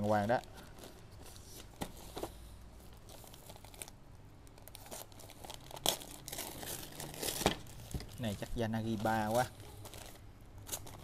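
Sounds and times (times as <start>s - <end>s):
packaging crinkling and tearing: 2.9s - 11.0s.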